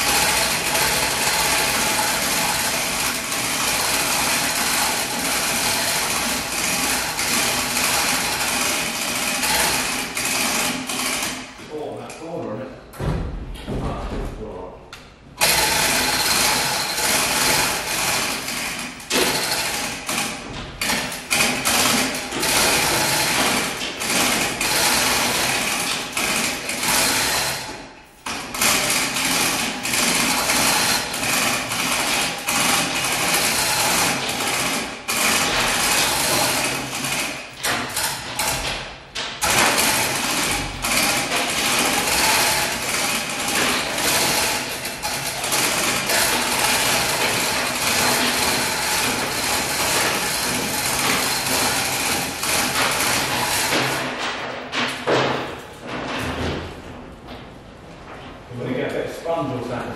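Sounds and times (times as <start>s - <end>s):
chain hoists rattling and clicking: 15.4s - 38.8s, 39.4s - 55.1s.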